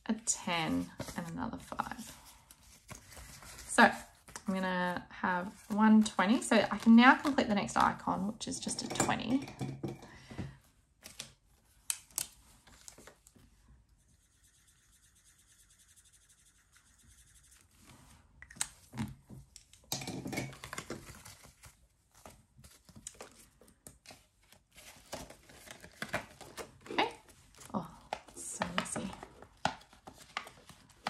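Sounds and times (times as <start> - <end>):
pages flipping: 0.8 - 4.5, 11.0 - 13.4, 20.6 - 31.0
faint scratching: 13.9 - 18.2.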